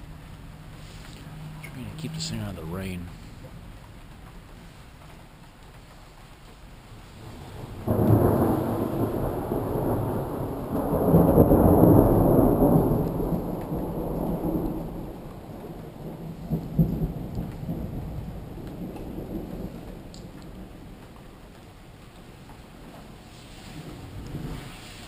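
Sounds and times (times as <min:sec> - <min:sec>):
thunder crack: 0:07.2 - 0:20.7
thunder clap: 0:07.2 - 0:21.2
thunder rumble: 0:07.2 - 0:21.6, 0:22.8 - 0:25.0.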